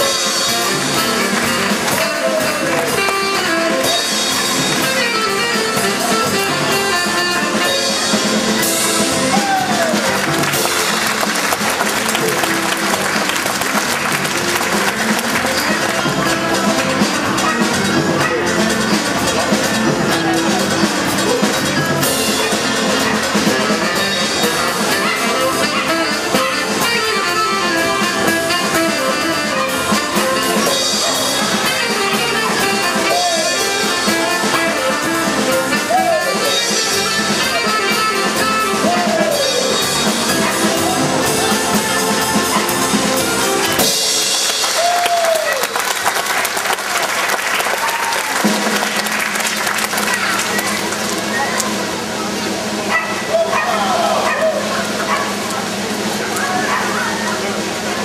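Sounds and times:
audience applause: 0.0s - 5.4s, 8.6s - 18.4s, 38.8s - 52.4s
circus band music with brass and drums: 0.0s - 58.0s.

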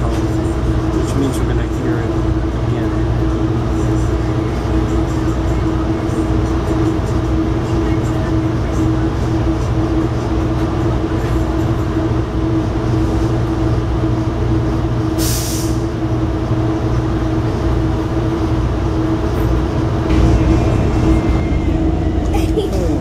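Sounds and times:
train rumbling: 0.0s - 23.0s
short hiss: 15.2s - 15.8s.

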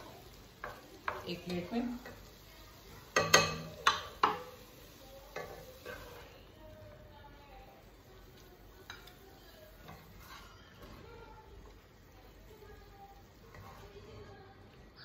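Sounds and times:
spatula scraping metal pot: 9.9s - 10.6s.

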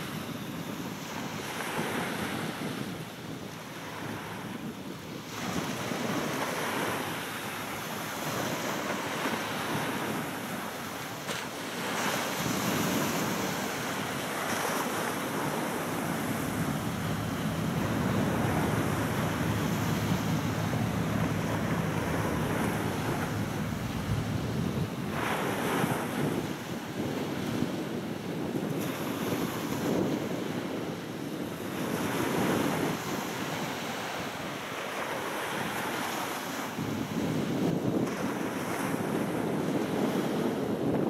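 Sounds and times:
small waves washing on shore: 0.0s - 41.0s
wind buffeting microphone: 0.0s - 41.0s
boat engine hum: 12.4s - 26.8s.

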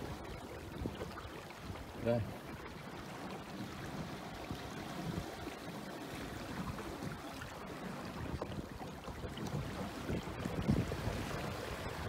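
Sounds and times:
water lapping against boat hull: 0.0s - 12.0s
water slapping hull: 0.0s - 12.0s
gusty wind: 6.4s - 12.0s.

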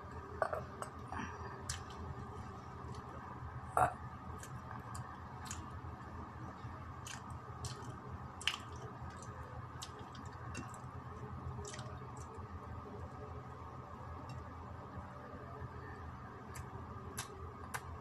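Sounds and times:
steady low hum: 0.0s - 18.0s
person chewing: 7.0s - 10.8s.

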